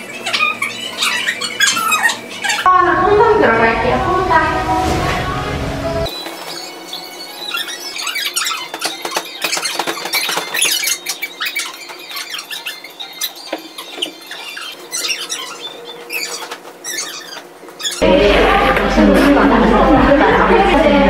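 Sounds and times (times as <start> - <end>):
hammocks squeaking: 5.7 - 18.0.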